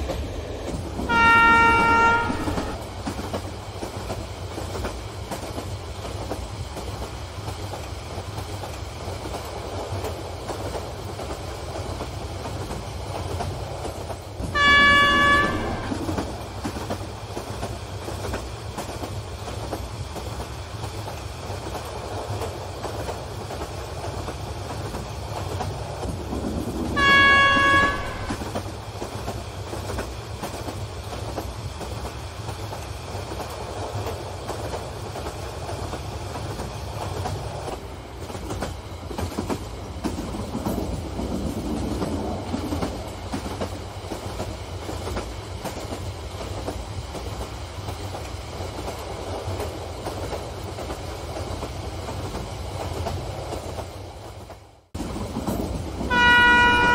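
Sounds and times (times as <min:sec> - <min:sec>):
model train running on track: 0:00.0 - 0:56.9
train horn: 0:01.1 - 0:02.8, 0:14.5 - 0:16.1, 0:27.0 - 0:28.6, 0:56.1 - 0:56.9.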